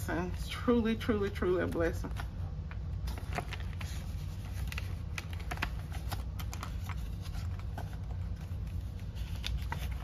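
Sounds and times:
paper and plastic rustling: 1.6 - 10.0.

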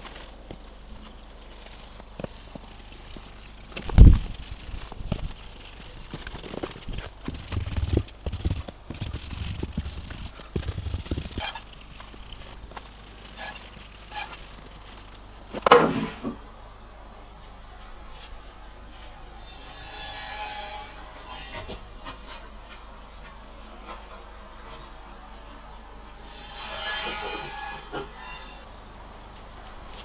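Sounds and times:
cloth rubbing on rough wood: 1.3 - 15.1.

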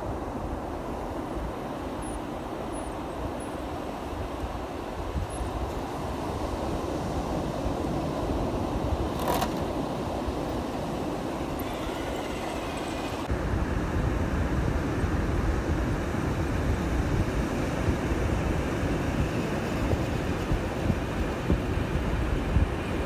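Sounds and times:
ocean surf rumbling: 3.6 - 13.3, 15.5 - 23.0
electric motor whine: 11.4 - 13.3
wind buffeting microphone: 15.5 - 23.0.

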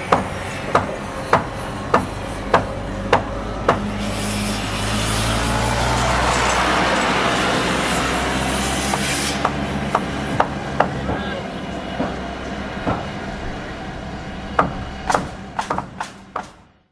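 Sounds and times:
machinery hum: 0.0 - 16.8.

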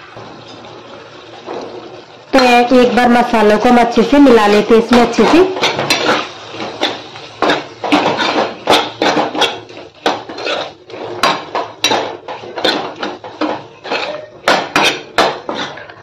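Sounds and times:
metal spatula scraping pan: 4.1 - 16.0.

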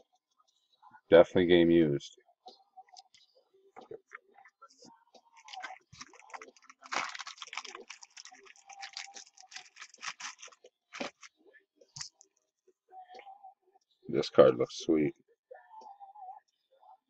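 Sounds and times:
packaging crinkling and crackling: 5.4 - 11.3.

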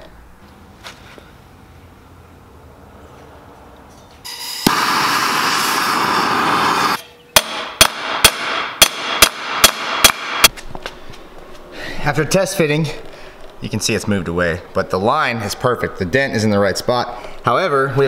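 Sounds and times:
gas torch hissing: 4.3 - 7.0
hammer striking metal pipe: 7.0 - 10.5.

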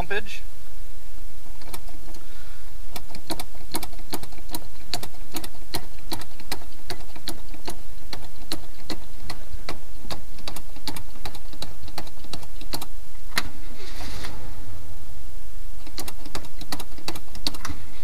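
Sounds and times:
accelerator pedal clicks: 2.9 - 13.5, 15.8 - 17.8
steady low rumble: 12.2 - 18.0.

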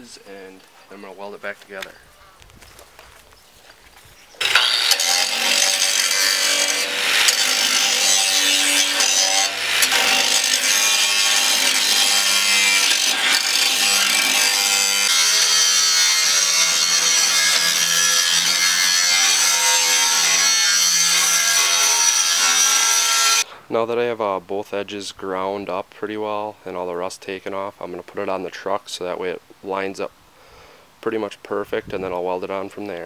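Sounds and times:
grinding wheel rasping on metal: 4.4 - 23.4
angle grinder whine: 4.4 - 23.5.

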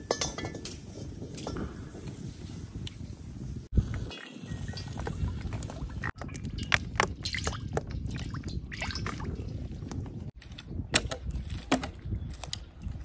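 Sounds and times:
sticks and branches handled: 9.3 - 13.0.

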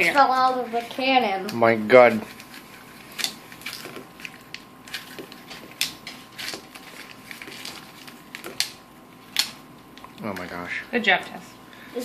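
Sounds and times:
paper rustling: 2.0 - 8.7.

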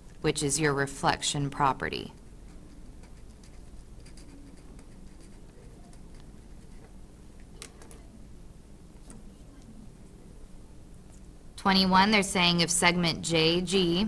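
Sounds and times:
marker scratching on paper: 2.4 - 6.9.

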